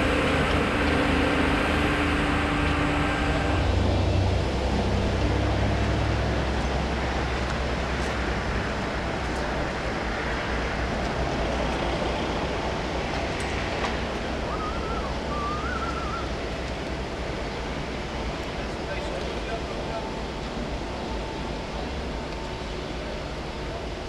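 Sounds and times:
diesel locomotive rumble: 0.0 - 24.0
rushing outdoor noise: 0.0 - 24.0
thin wavering whistle: 14.4 - 16.4.

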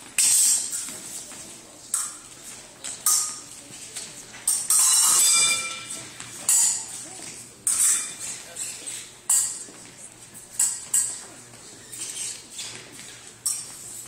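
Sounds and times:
fencing blades clicking: 10.6 - 11.2.

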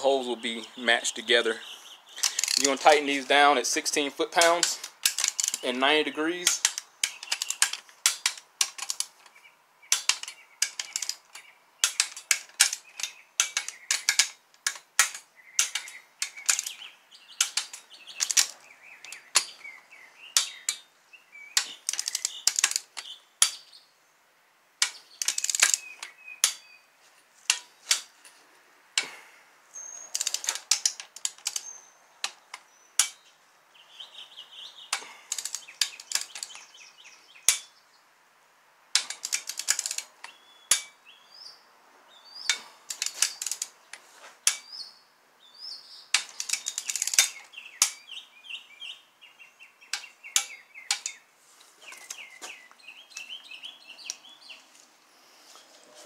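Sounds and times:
socket ratchet clicking: 2.2 - 3.3, 4.3 - 5.8, 6.4 - 19.6, 20.4 - 20.8, 21.6 - 23.6, 24.8 - 26.7, 27.5 - 28.1, 30.0 - 33.2, 34.9 - 36.7, 39.0 - 41.0, 42.5 - 43.8, 46.1 - 48.0.

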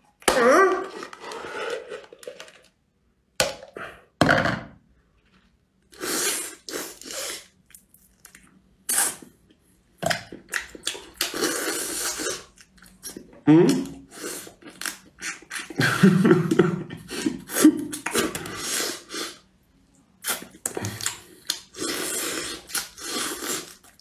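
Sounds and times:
sucking and slurping while eating: 5.9 - 9.3, 10.4 - 15.8, 17.1 - 24.0.

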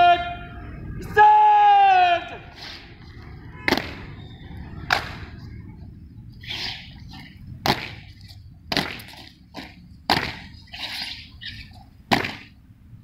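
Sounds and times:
boots stamping on pavement: 7.6 - 10.6.

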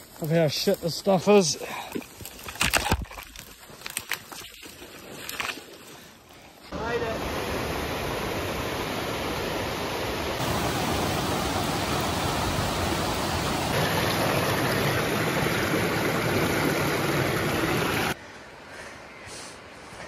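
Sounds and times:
creek rushing over boulders: 6.7 - 18.2.

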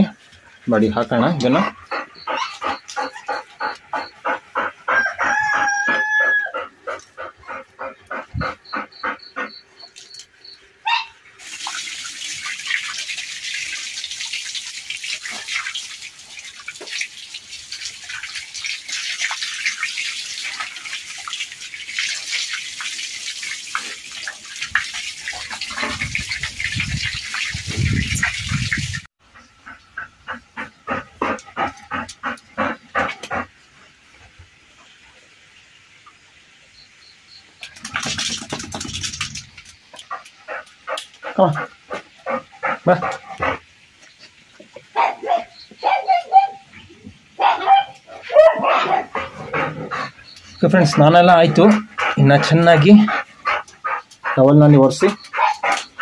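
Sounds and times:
dog panting: 1.2 - 10.0, 29.3 - 33.5, 40.0 - 43.6, 48.8 - 56.0
water splashing on dog: 11.4 - 29.1, 37.6 - 56.0.

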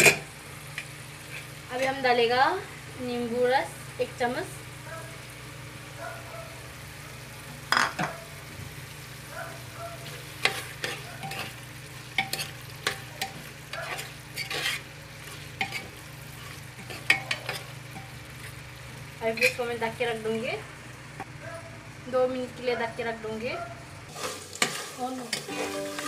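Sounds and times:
metal spoon scraping pot: 10.4 - 11.6, 12.2 - 17.7.

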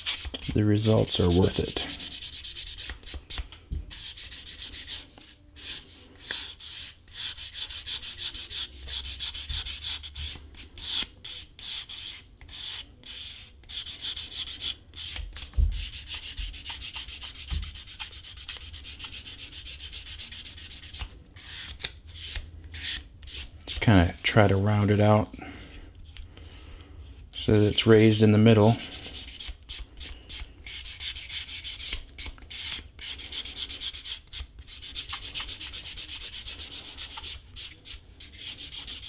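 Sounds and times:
sandpaper scraping leather: 28.0 - 39.0.

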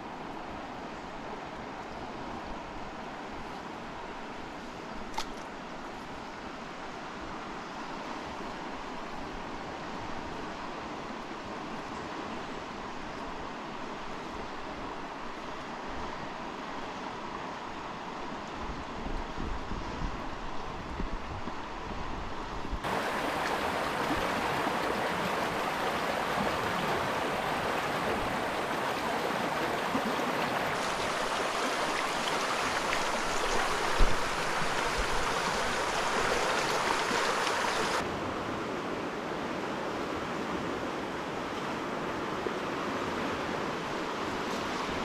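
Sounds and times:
fast-flowing river rushing: 22.8 - 38.2.

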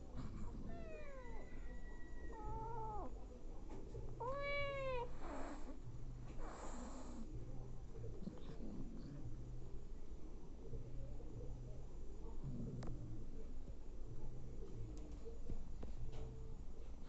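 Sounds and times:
cat purring: 0.0 - 9.9, 10.7 - 16.7
cat meowing: 0.6 - 3.1, 4.2 - 5.1.

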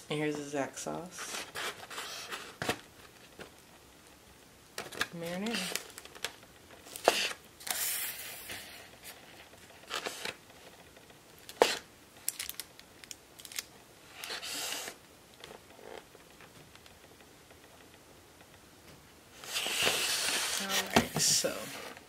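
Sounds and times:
scraping rustles: 19.4 - 22.0.

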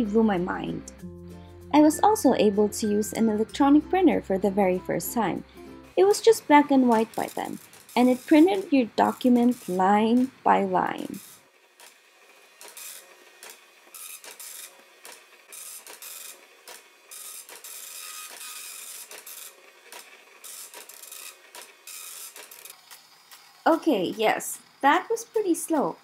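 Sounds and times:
dot matrix printer printing: 12.6 - 23.4.

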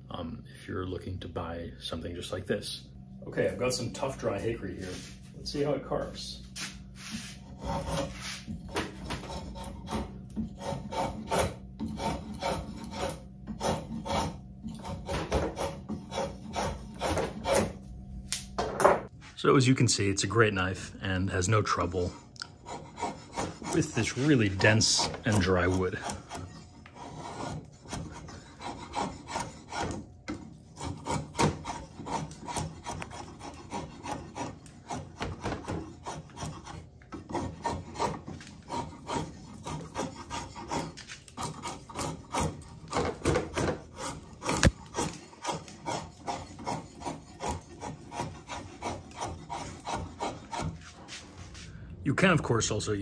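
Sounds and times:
drawknife scraping wood: 6.6 - 17.8, 22.0 - 51.6.

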